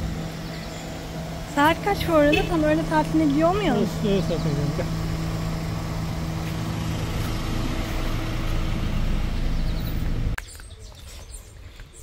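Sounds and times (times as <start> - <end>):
minibus engine idling: 0.0 - 10.4.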